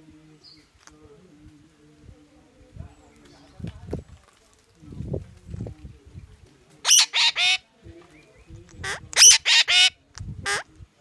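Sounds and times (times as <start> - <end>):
parakeet squawking: 6.9 - 7.6, 8.8 - 10.6.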